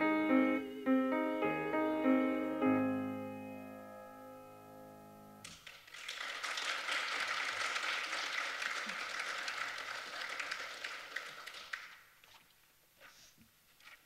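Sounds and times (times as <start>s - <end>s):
piano chord: 0.0s - 5.5s
audience applauding: 5.5s - 12.1s.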